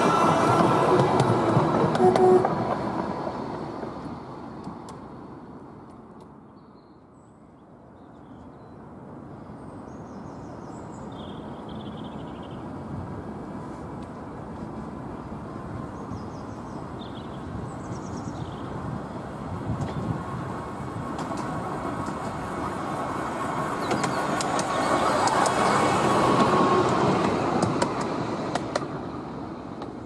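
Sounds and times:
wheels rumbling on rails: 0.0 - 6.4, 9.7 - 30.0
sharp clicks: 23.9 - 25.6.

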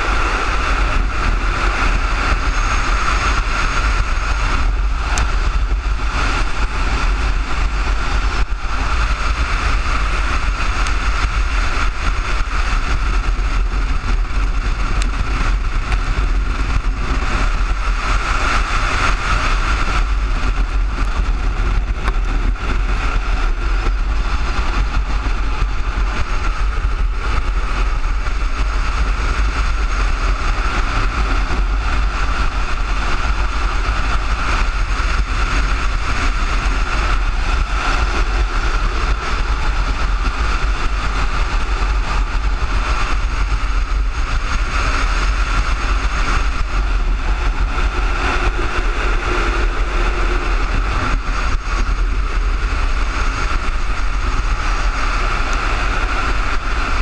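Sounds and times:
wheels rolling on asphalt: 0.0 - 57.0
wind buffeting microphone: 0.0 - 57.0.

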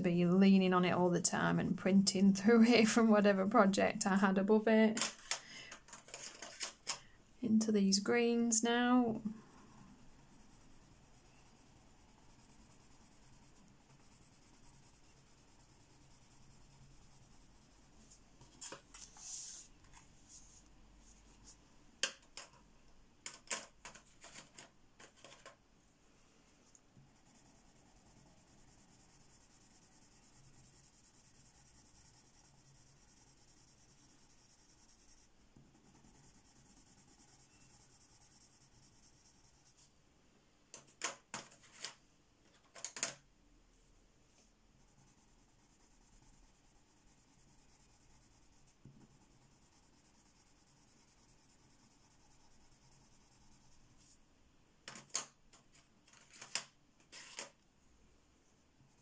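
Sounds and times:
pencils clicking and tapping: 4.9 - 7.0, 23.2 - 25.6, 40.7 - 43.2, 54.8 - 57.6
pencil scratching on paper: 8.2 - 21.6, 27.0 - 39.9, 44.8 - 54.2.

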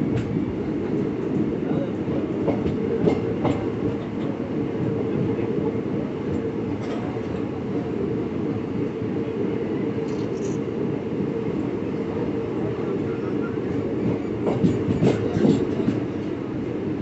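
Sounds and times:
train wheels rumbling on rails: 0.0 - 17.0
train wheels clicking: 14.0 - 16.3.

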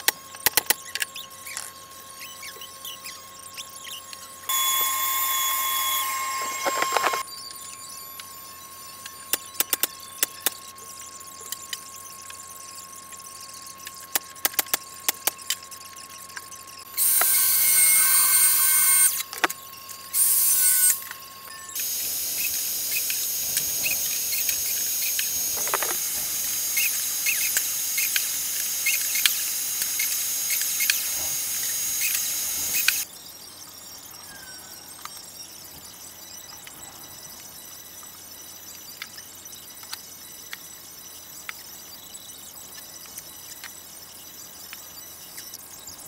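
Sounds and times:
power tool whining: 3.6 - 10.6, 16.9 - 33.1.

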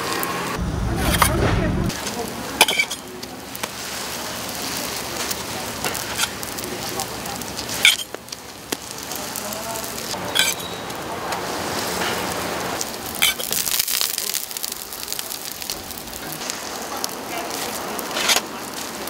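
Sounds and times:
dough sizzling in oil: 1.9 - 19.0.

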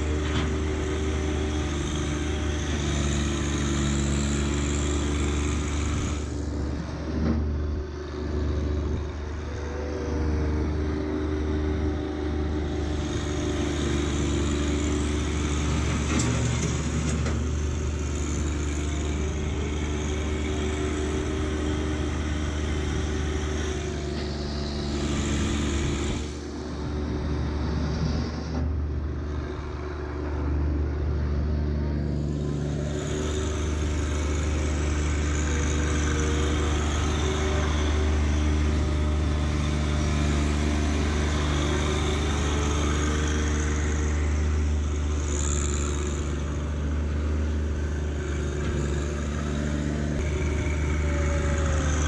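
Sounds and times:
tractor diesel engine running: 0.0 - 52.0.

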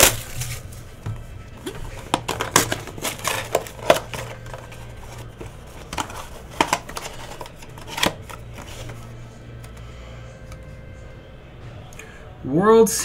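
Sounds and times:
wrapping crinkling: 0.0 - 1.0, 1.6 - 9.1
cardboard scraping and tapping: 0.0 - 9.0
steady low hum: 0.0 - 12.5.

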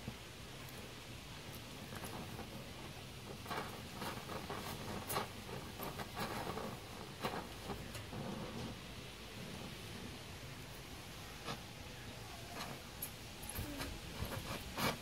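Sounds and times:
sharp crackles and snaps: 0.0 - 15.0
welding torch flame hissing: 0.0 - 15.0.

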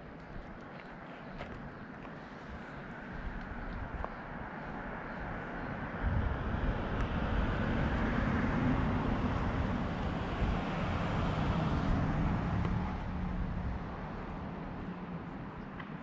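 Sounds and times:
cars passing: 1.3 - 16.0
wind on microphone: 5.3 - 15.7.

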